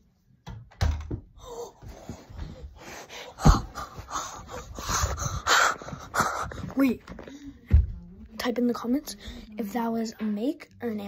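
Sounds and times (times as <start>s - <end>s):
boy gasping and breathing hard: 1.4s - 7.7s.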